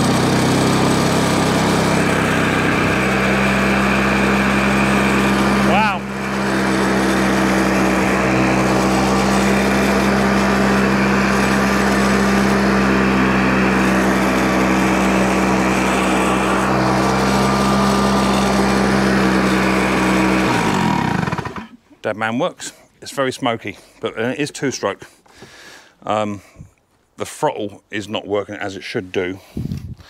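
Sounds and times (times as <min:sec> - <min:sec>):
lawn mower engine running: 0:00.0 - 0:21.8.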